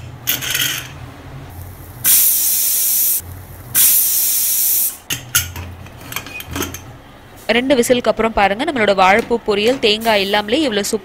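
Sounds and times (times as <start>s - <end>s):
pressure cooker whistling: 2.0s - 3.2s.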